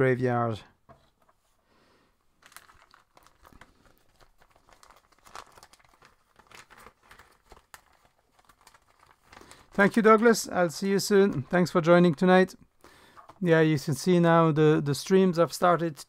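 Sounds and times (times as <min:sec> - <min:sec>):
crinkling of hands handling things: 0:00.8 - 0:13.5.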